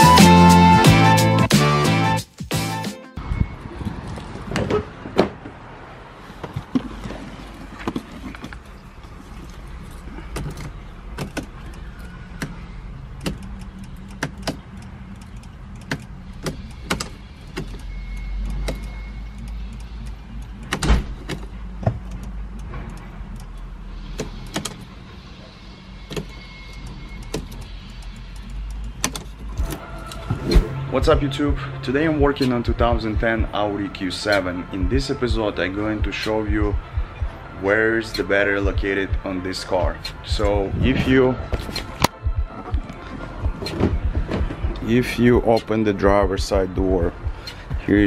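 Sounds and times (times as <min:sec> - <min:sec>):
low hum: 0:07.8 - 0:48.0
clicks and knocks of controls: 0:09.9 - 0:25.0, 0:26.1 - 0:30.8, 0:41.5 - 0:44.9
car door opening click: 0:13.2 - 0:14.6, 0:15.2 - 0:19.6, 0:20.6 - 0:23.5, 0:24.1 - 0:24.9, 0:41.5 - 0:44.8.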